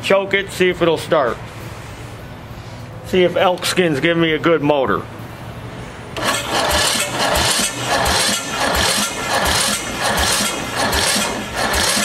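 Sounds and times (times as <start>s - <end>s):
electric starter cranking engine: 6.2s - 12.0s.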